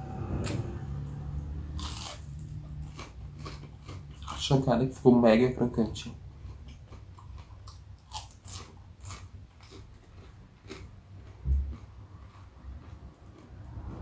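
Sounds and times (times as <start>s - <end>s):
crunchy chewing: 1.6s - 4.7s, 6.0s - 14.0s.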